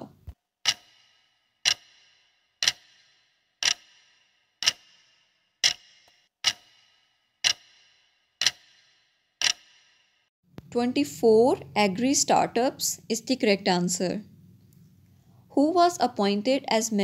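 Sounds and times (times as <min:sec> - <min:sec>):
clock ticks with ringing tail: 0:00.6 - 0:12.3.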